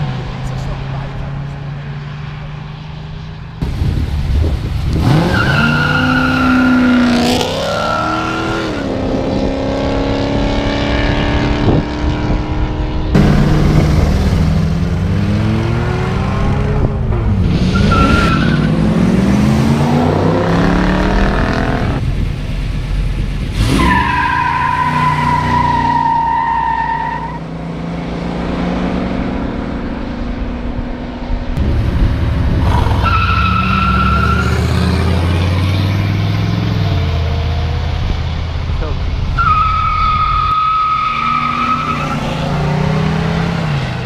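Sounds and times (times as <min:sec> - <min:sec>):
car engines revving: 0:00.0 - 0:44.0.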